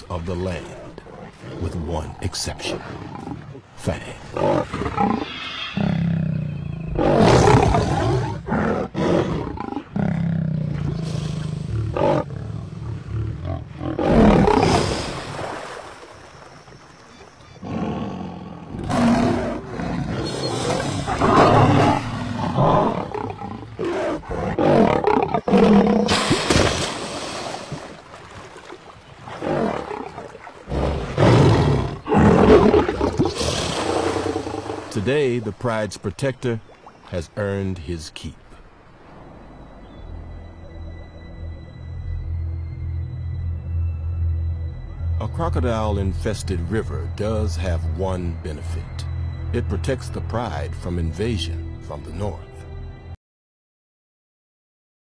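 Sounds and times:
lion roaring and snarling: 4.3s - 15.2s, 17.6s - 26.4s, 29.2s - 34.9s.

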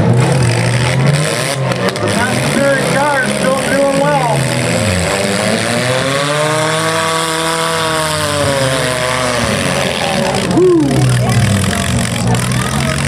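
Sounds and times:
car engine revving: 0.0s - 13.0s
other engines running: 0.0s - 13.0s.

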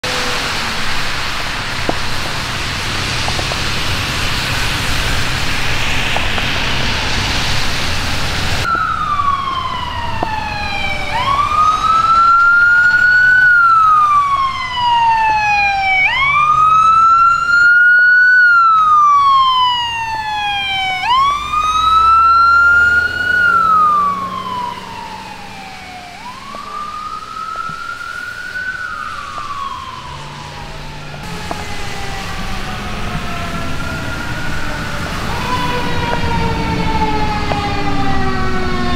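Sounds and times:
emergency vehicle wail siren: 0.0s - 38.9s
traffic on wet road: 0.0s - 38.9s.

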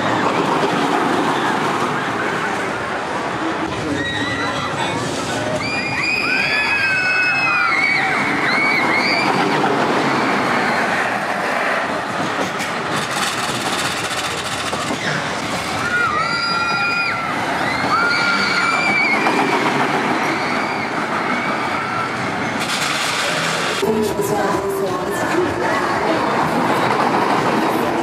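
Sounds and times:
roller coaster rushing on track: 0.0s - 28.0s
high drawn-out squeals: 3.8s - 11.4s, 14.7s - 23.8s.

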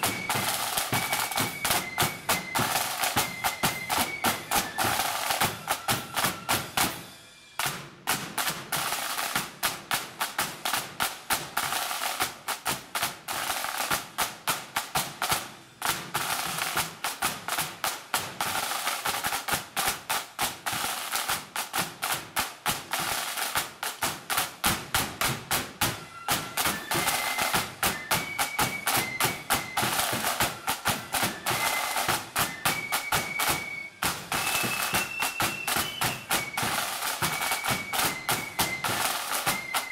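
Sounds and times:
high flute tune: 0.0s - 7.6s, 25.7s - 39.9s
side drums beating rapidly: 0.0s - 39.9s.

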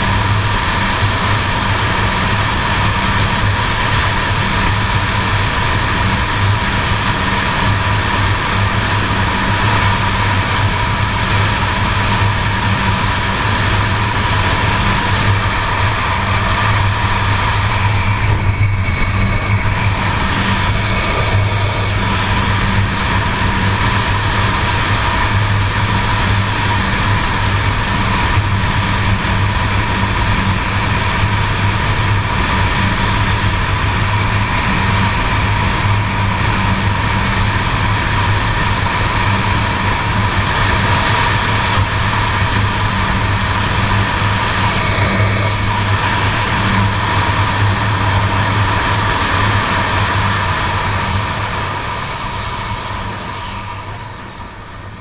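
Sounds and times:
motorcycle engine running: 0.0s - 54.5s
wind noise: 0.0s - 55.0s
road noise: 12.2s - 25.6s, 41.8s - 55.0s.

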